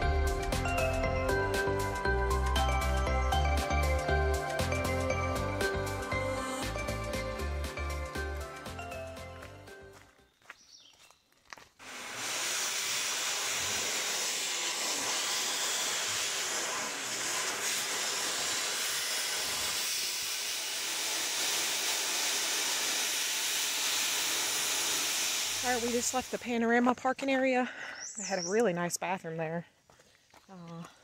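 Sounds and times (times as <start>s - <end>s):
electric hand dryer blowing: 11.8s - 26.4s.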